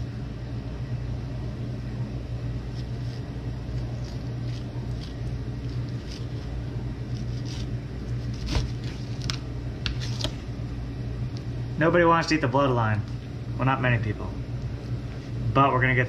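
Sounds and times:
low appliance hum: 0.0s - 16.0s
knife slicing fish: 2.6s - 10.4s.

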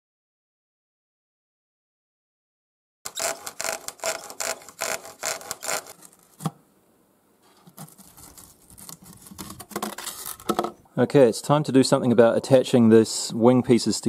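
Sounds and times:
blade sawing scraping strokes: 3.1s - 6.3s.

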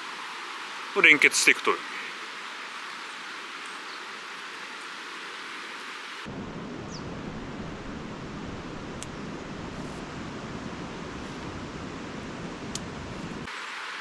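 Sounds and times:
wind rumble on microphone: 6.3s - 13.5s.

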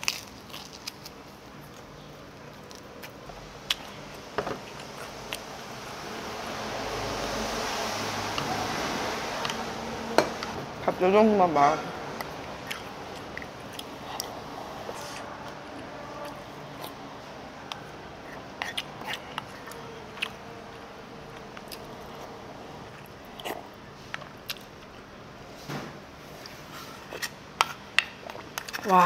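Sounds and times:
chewing: 0.0s - 5.5s, 12.2s - 17.0s, 17.7s - 25.0s, 26.4s - 29.0s
low room hum: 0.0s - 29.0s.

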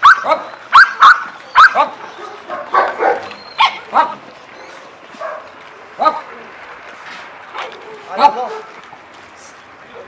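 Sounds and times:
dogs barking and yelping: 0.0s - 6.4s.

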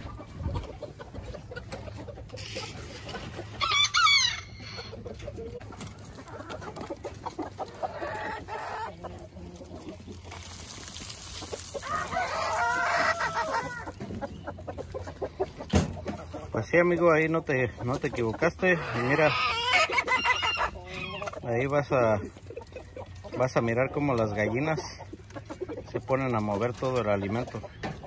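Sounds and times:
chickens clucking: 0.0s - 28.0s
rooster crowing: 3.6s - 4.9s, 11.8s - 13.8s.

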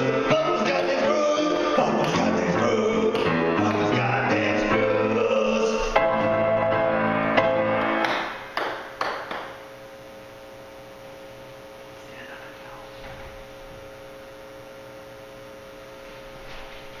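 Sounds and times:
faint hum: 8.2s - 17.0s.

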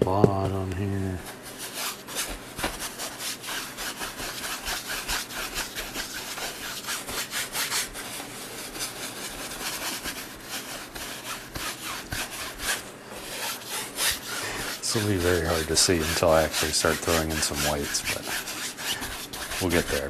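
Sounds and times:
bristle brush scrubbing canvas: 1.4s - 20.0s.

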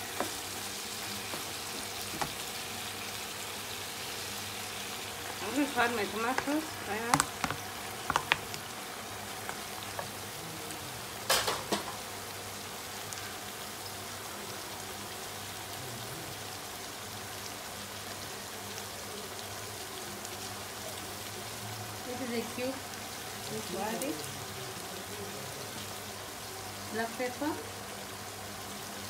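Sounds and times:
meat frying with sizzling hiss: 0.0s - 29.0s.

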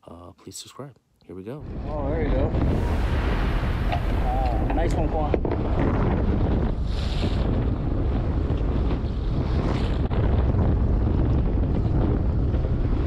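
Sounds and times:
wind buffeting microphone: 1.5s - 13.0s
water washing along hull: 2.5s - 7.4s.

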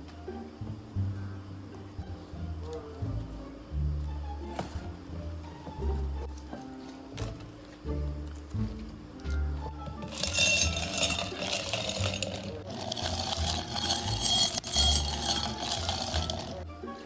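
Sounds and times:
ice crackling and clinking on glass: 10.0s - 16.6s
liquid pouring over ice: 10.1s - 16.6s.

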